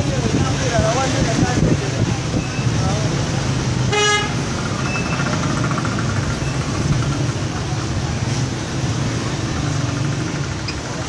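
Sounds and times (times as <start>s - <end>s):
road noise: 0.0s - 11.0s
vehicle engine running: 4.4s - 11.0s.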